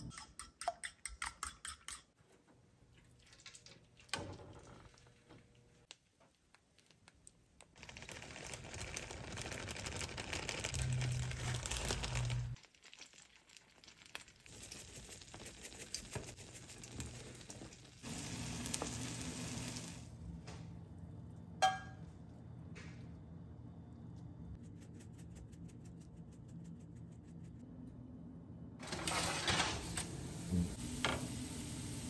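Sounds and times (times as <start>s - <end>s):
eggs sizzling in frying pan: 5.7s - 20.2s, 28.8s - 32.0s.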